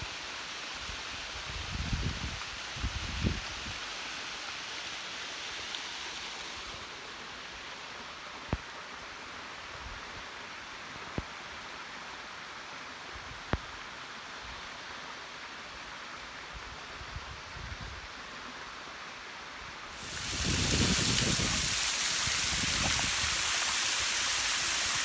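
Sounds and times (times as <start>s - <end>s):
waterfall rushing: 19.9s - 25.0s.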